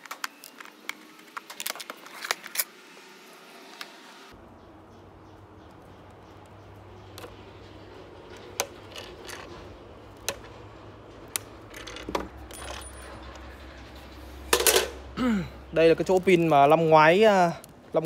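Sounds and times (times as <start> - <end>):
sharp metallic clicks and clinks: 7.1 - 15.0.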